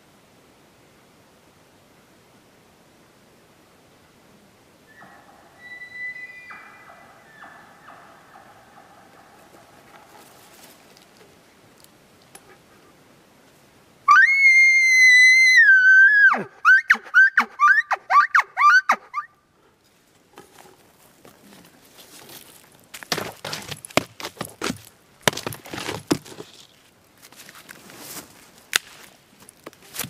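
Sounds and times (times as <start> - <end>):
elk bugling: 4.9 - 11.4, 15.5 - 19.4.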